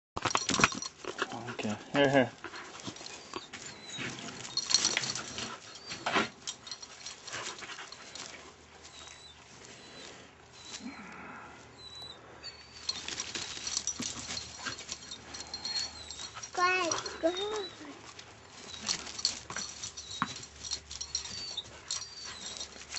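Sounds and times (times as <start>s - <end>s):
handling knocks and rustling: 0.2s - 9.8s, 12.8s - 22.9s
dog: 12.9s - 22.9s.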